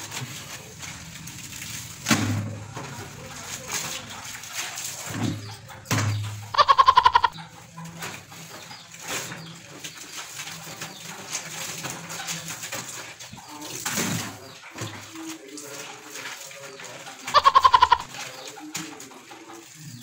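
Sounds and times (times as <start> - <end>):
laundry scrubbed in soapy water: 0.0 - 5.7, 7.2 - 20.0
loud quavering call: 6.5 - 7.4, 17.3 - 18.1.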